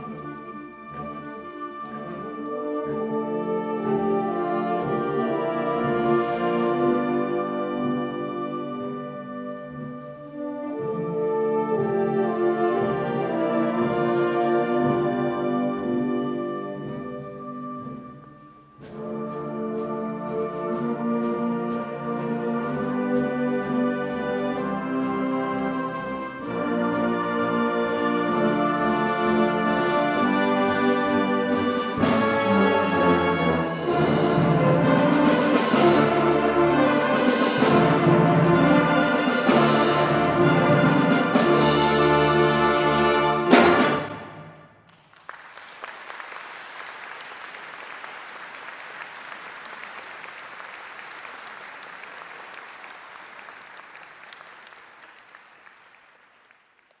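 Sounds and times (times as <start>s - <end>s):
wind band playing: 0.0s - 44.9s
audience applauding: 44.9s - 57.0s.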